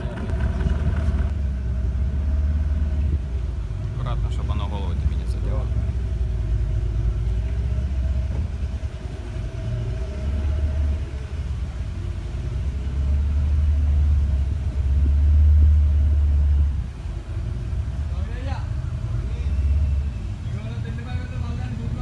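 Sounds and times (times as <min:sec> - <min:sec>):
outboard motor running: 0:00.0 - 0:02.2.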